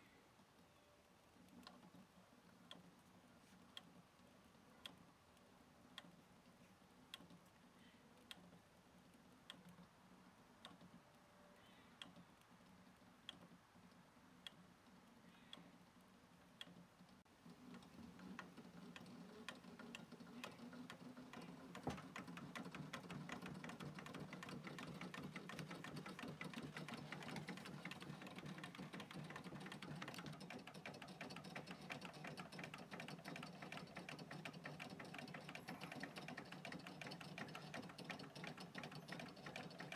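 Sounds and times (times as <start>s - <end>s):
light ticking: 11.6s - 39.9s
toy engines clicking and clattering: 16.6s - 39.9s.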